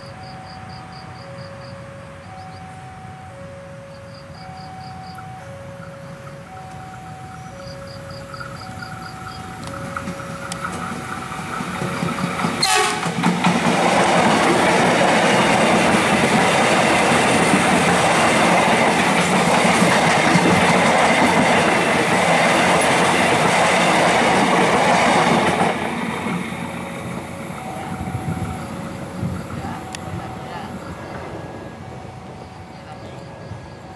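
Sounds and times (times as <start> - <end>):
train wheels on rails: 0.0 - 33.9
train horn blast: 12.6 - 13.3.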